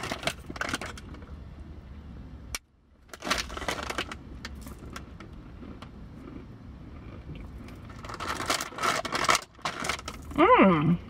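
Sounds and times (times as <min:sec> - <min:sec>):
crackly handling noises: 0:00.0 - 0:01.4, 0:02.5 - 0:06.4, 0:07.0 - 0:10.4
cookie crunching: 0:03.1 - 0:10.4.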